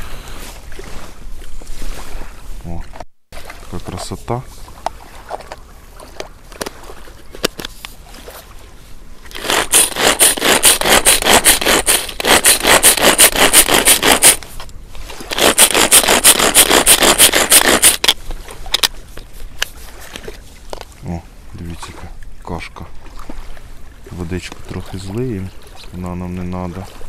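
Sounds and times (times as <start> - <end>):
blender chopping corn: 9.4 - 14.4, 15.3 - 18.0.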